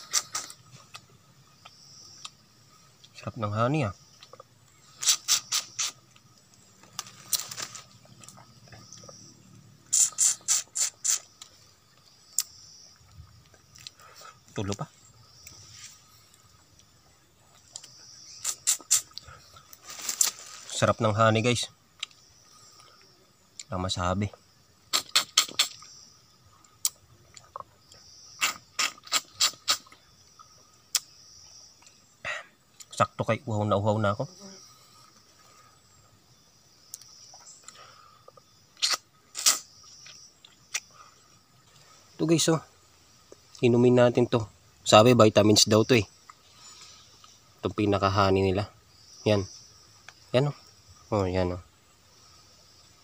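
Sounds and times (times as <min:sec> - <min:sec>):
wet lip smacks and sucking: 0:05.0 - 0:06.0, 0:09.9 - 0:11.3, 0:18.4 - 0:19.2, 0:28.4 - 0:29.9, 0:38.8 - 0:39.7
wet mouth smacks and slurping: 0:38.8 - 0:39.6.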